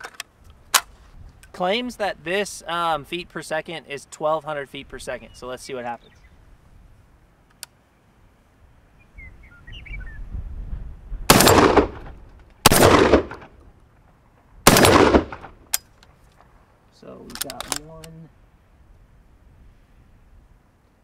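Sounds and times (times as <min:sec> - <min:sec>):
shotgun blasts: 0:11.3 - 0:13.6, 0:14.6 - 0:15.7.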